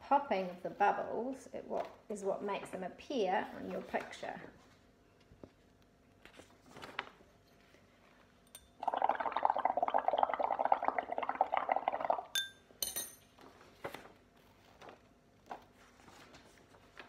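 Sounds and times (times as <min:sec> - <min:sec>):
bubbling through a straw: 0:08.8 - 0:12.4
glass clinks: 0:12.4 - 0:13.2.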